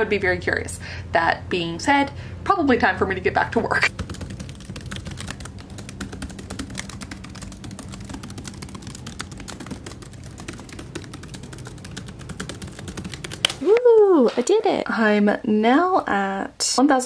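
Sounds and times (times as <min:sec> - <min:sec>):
low steady hum: 0:00.0 - 0:17.0
laptop keyboard typing: 0:03.9 - 0:13.6.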